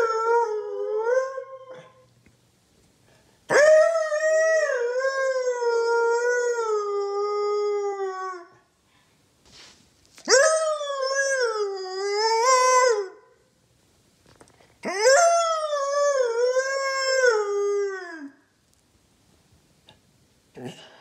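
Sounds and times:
dog howling: 3.5 - 8.6, 10.3 - 13.2, 14.8 - 18.4.

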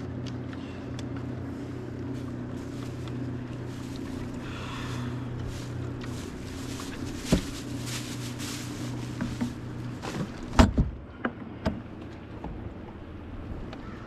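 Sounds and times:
boat motor humming: 0.0 - 14.0
knocks on boat: 9.2 - 11.8.

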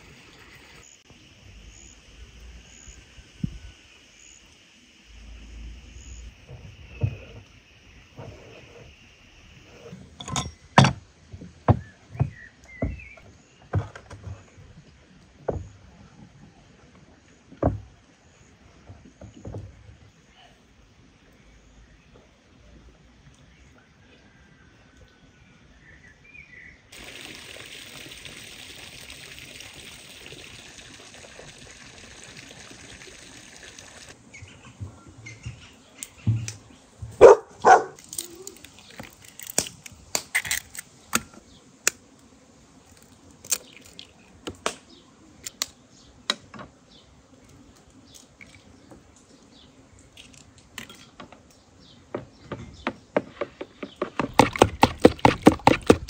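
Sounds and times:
steady high hiss: 0.0 - 11.2.

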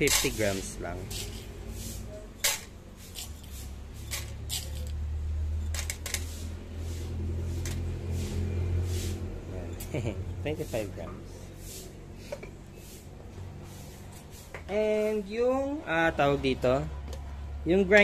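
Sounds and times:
coffee beans and spoon rattling: 0.0 - 6.3.

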